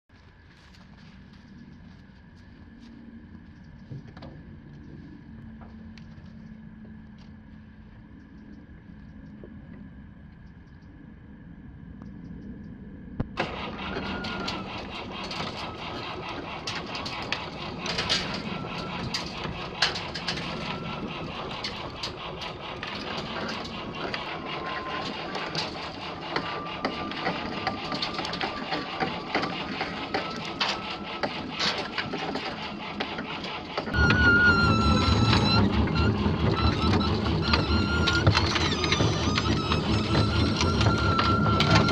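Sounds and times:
vehicle engine running: 0.2s - 9.8s, 12.9s - 41.9s
steel tracks clattering and knocking: 13.4s - 41.9s
wavering squeal: 13.4s - 41.9s.

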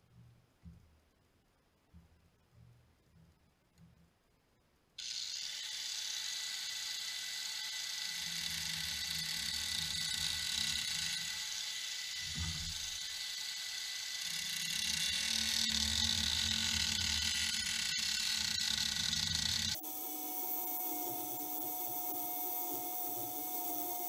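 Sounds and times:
angle grinder whine: 5.0s - 24.0s
disc grinding wood: 5.0s - 24.0s.

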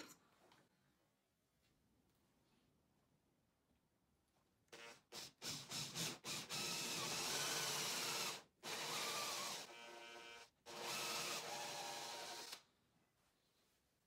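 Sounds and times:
cordless drill with hole saw cutting: 4.7s - 12.6s.

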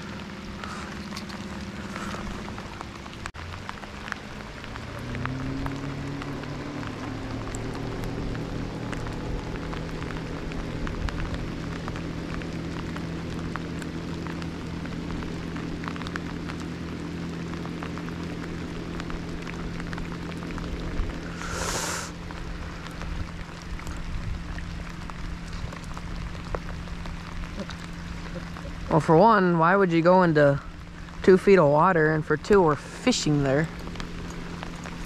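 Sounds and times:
outboard motor running: 0.0s - 35.0s
rain pattering on water: 0.0s - 35.0s.

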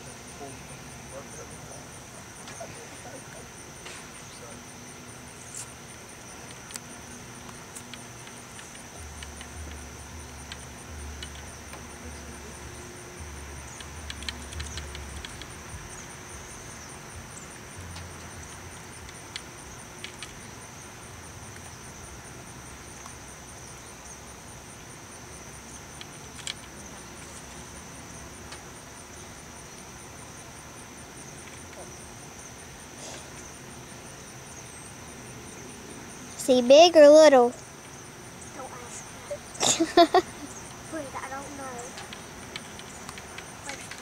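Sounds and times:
insect chorus buzzing: 0.0s - 44.0s
sharp clicks: 13.7s - 15.6s.

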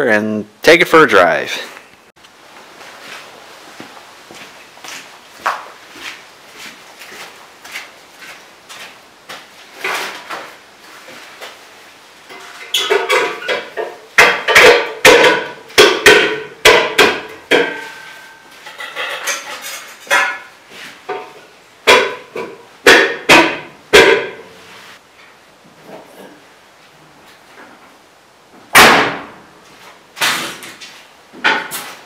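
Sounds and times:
sharp knocks and clanks: 12.3s - 24.6s, 28.6s - 29.4s, 30.2s - 32.0s.

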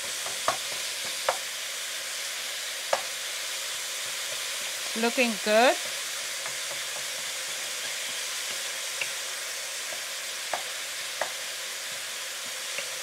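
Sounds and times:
utensil ticking against pan: 0.0s - 1.4s, 6.4s - 9.2s, 9.9s - 11.4s
meat sizzling in a frying pan: 0.0s - 13.0s.

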